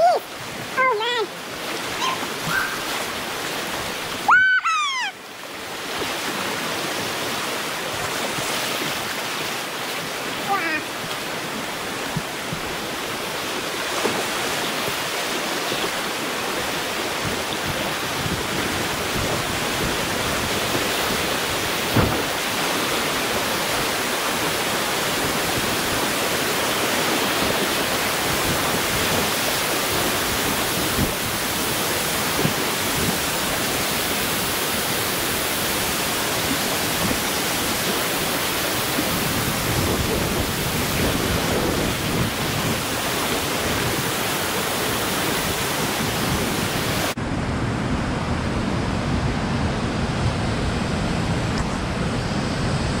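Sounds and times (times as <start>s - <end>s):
river pouring over rock ledge: 0.0s - 47.2s
whitewater rushing: 0.0s - 53.0s.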